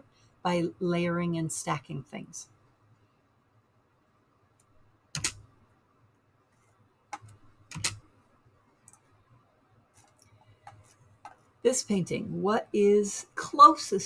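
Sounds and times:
computer mouse clicks: 0:04.6 - 0:05.4, 0:07.1 - 0:08.0, 0:08.8 - 0:09.1, 0:10.0 - 0:11.4.

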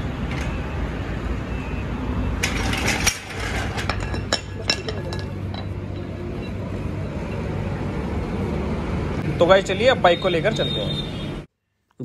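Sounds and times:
floor jack metal clanks: 0:02.4 - 0:05.8.

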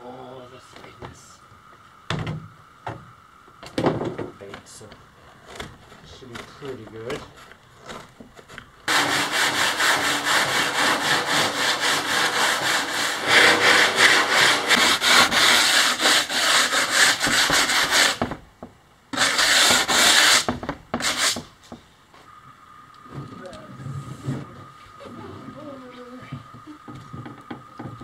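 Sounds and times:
sandpaper rubbing on fiberglass: 0:08.9 - 0:18.4, 0:19.1 - 0:21.6.

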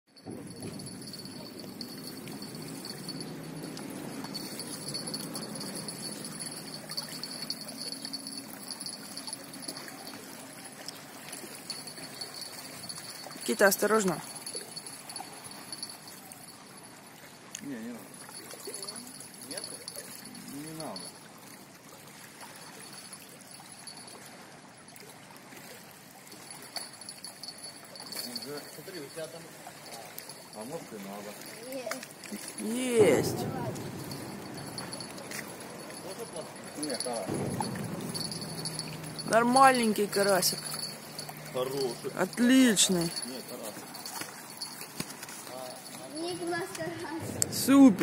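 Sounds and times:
faint high steady tone: 0:00.1 - 0:17.0, 0:31.4 - 0:46.8
river water lapping against rocks: 0:00.2 - 0:48.0
steady high-pitched tone: 0:32.6 - 0:44.7.

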